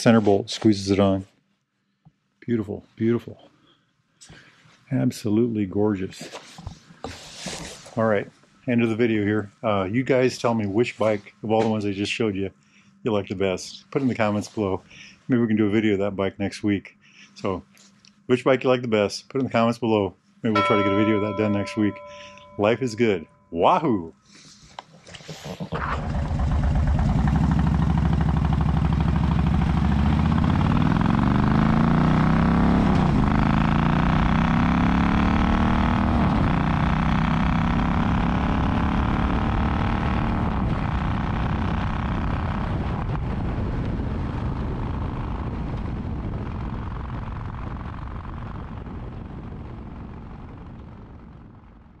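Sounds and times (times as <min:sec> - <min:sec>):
motorcycle engine accelerating: 0:25.5 - 0:51.8.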